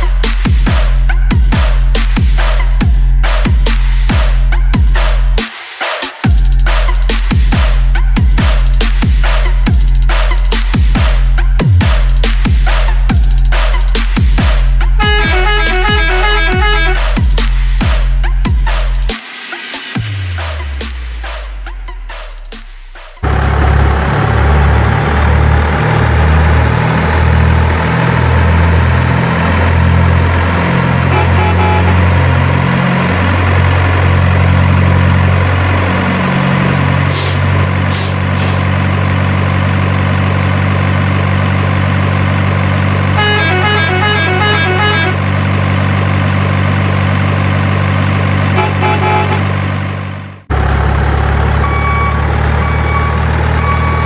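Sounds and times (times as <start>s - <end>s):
diesel truck engine revving: 0.0s - 5.4s, 6.4s - 19.2s, 23.0s - 54.0s
alternating horn tones: 15.0s - 17.2s, 23.2s - 34.3s, 43.1s - 45.5s, 48.4s - 49.8s
air brake hisses: 37.1s - 38.7s.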